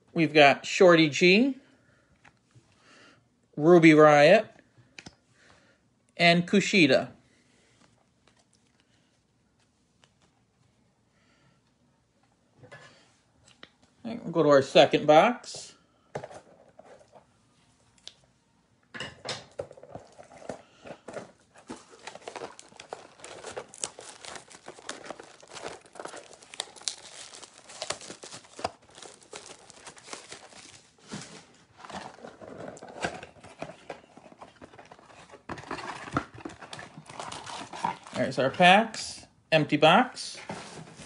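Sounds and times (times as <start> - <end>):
plastic wrap crinkling and tearing: 21.2 - 38.3.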